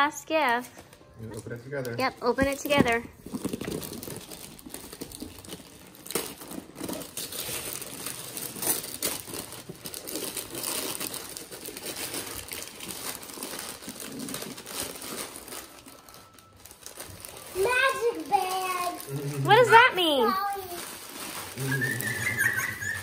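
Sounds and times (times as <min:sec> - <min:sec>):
wrapping paper tearing and crinkling: 0:00.9 - 0:23.0.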